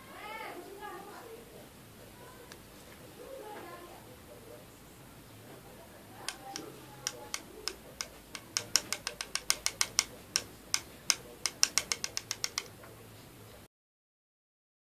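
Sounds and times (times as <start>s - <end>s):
finger tapping microphone: 6.3s - 12.7s.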